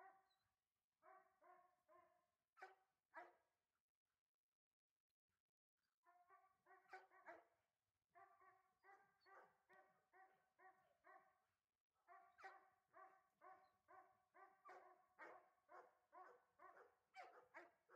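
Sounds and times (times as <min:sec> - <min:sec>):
faint dog barking: 0:00.0 - 0:00.4, 0:01.0 - 0:03.5, 0:06.1 - 0:07.6, 0:08.2 - 0:11.4, 0:12.1 - 0:17.9.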